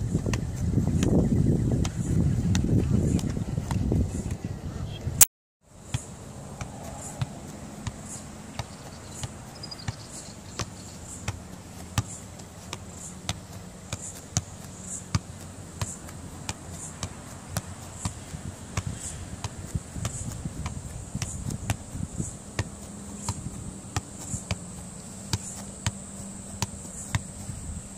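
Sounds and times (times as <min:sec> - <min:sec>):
football taps on foot and knee: 0:07.8 - 0:27.5.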